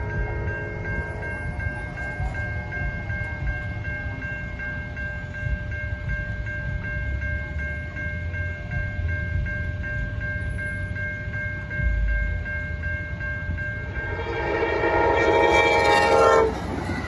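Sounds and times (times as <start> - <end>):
passing train rumble: 0.0 - 17.0
railroad crossing bell ringing: 0.0 - 17.0
train horn: 14.0 - 17.0.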